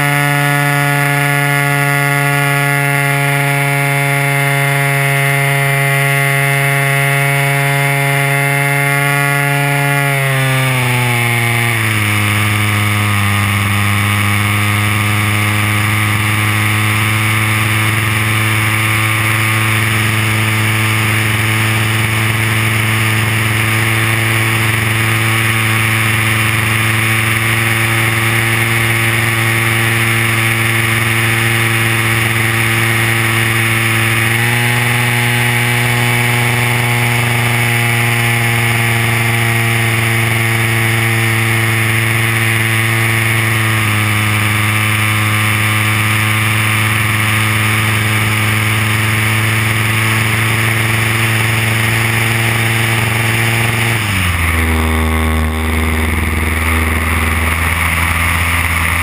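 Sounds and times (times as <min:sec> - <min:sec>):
model plane engine running: 0:00.0 - 0:59.0
wind and propeller hiss: 0:11.8 - 0:37.6, 0:39.8 - 0:59.0.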